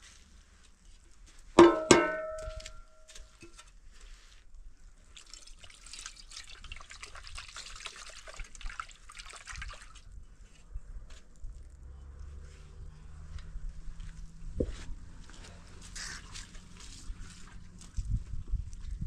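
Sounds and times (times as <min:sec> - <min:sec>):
sharp ringing knocks: 0:01.6 - 0:02.9
water splashing and trickling: 0:04.9 - 0:10.5, 0:15.3 - 0:19.0.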